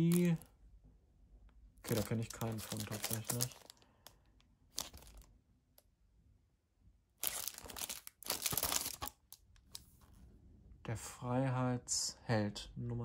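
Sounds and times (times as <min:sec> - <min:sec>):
plastic sleeve crinkling: 0:00.0 - 0:00.5, 0:01.8 - 0:05.3, 0:07.2 - 0:10.0.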